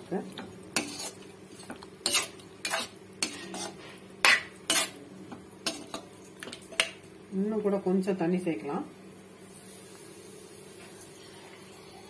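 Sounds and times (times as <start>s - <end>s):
metal spoon scraping a pan: 0.8s - 5.0s.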